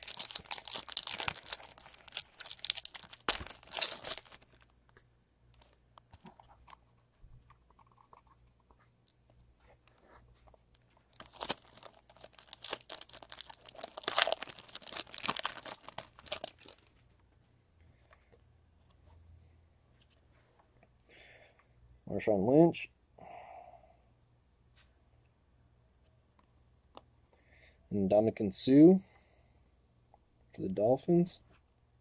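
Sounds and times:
foil wrapper tearing and crinkling: 0.0s - 4.7s, 5.5s - 5.8s, 11.1s - 16.9s
small clicks and rustles: 0.0s - 17.1s.

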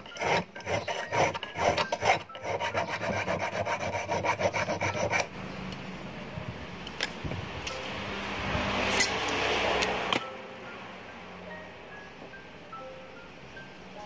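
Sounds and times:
hand file rasping on metal: 0.0s - 5.3s.

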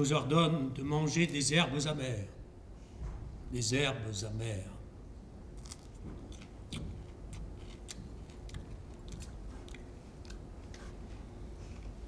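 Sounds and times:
people chewing crunchy herbs: 5.5s - 12.0s.

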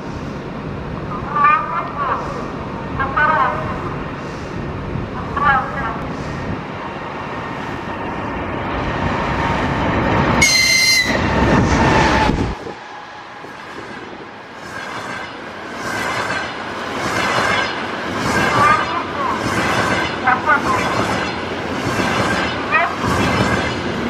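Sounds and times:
train rumble: 0.0s - 24.0s
train horn blast: 10.4s - 11.2s.

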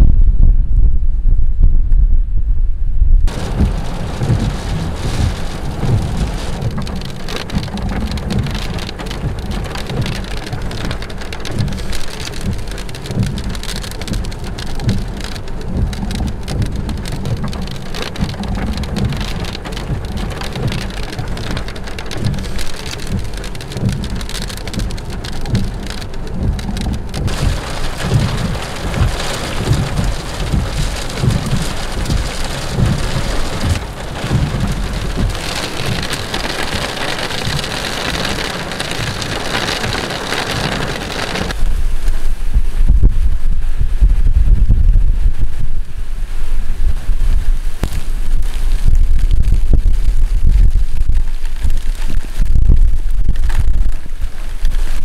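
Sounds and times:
thunder rumbling: 0.0s - 46.1s
heavy rain beating on a car: 3.3s - 55.0s.

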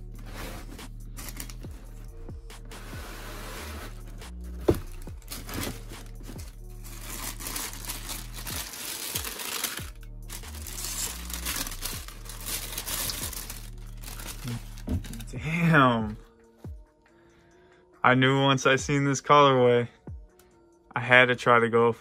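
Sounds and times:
background music with bass: 0.0s - 22.0s
tissue paper crinkling: 0.3s - 1.7s, 3.3s - 15.3s.

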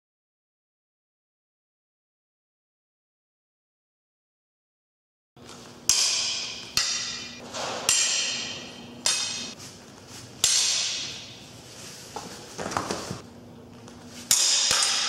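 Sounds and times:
steel blades clashing: 5.9s - 9.6s, 10.4s - 11.4s, 14.3s - 15.0s.

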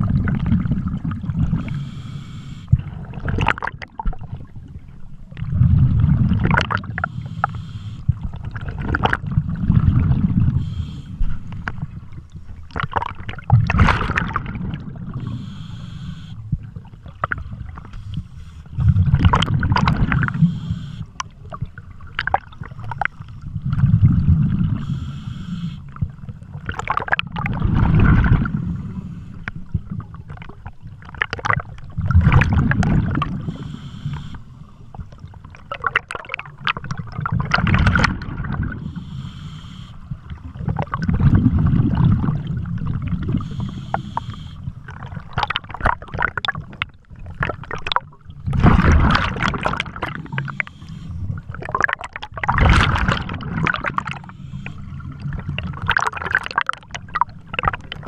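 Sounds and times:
exhaled bubbles underwater: 0.0s - 58.0s
regulator inhale hiss: 1.6s - 2.8s, 7.0s - 8.1s, 10.5s - 11.5s, 15.2s - 16.4s, 17.9s - 19.1s, 20.3s - 21.1s, 24.8s - 25.9s, 28.6s - 29.6s, 33.4s - 34.9s, 38.7s - 40.2s, 43.4s - 44.7s, 50.1s - 51.4s, 54.1s - 55.0s.

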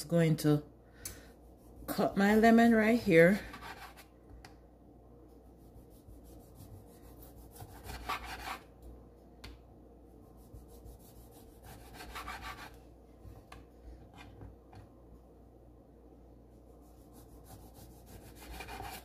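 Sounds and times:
knife slicing through a lemon: 10.6s - 12.7s.

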